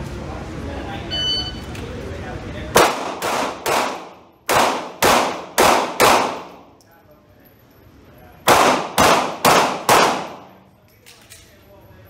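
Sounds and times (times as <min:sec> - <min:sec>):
handgun shots echoing: 0:02.8 - 0:06.7, 0:08.5 - 0:10.6.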